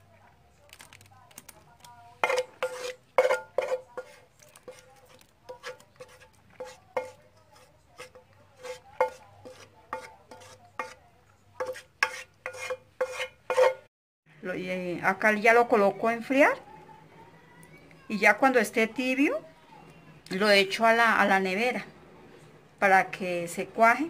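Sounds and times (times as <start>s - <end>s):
spoon scraping and knocking bowl: 2.2s - 13.9s.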